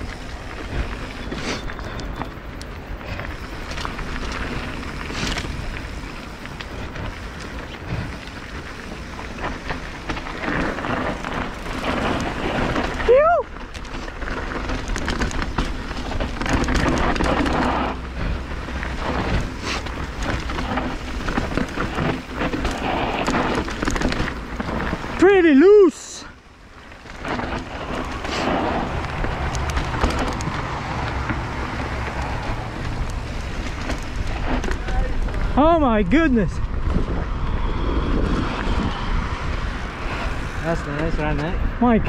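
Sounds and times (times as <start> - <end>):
bike rattles and clicks: 0.0 - 42.0
bike tyre and wind noise: 0.0 - 42.0.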